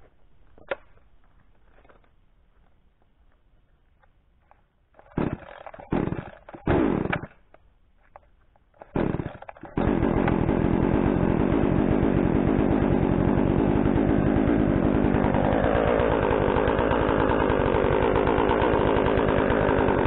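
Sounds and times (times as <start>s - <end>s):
chainsaw engine running: 5.2s - 7.2s, 9.0s - 20.0s.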